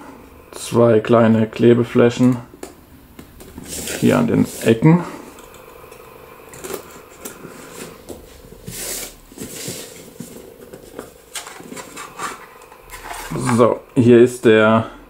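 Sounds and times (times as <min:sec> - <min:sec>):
packaging rustling and scraping: 0:03.4 - 0:04.8, 0:06.5 - 0:13.8.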